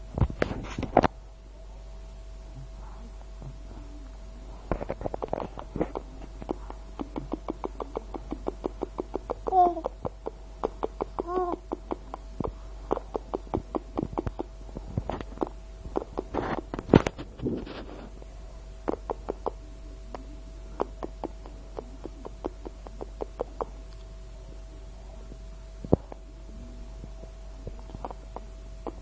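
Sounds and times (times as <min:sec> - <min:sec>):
faint steady whine: 0:00.0 - 0:29.0
baby cooing: 0:09.4 - 0:10.0, 0:11.2 - 0:11.8.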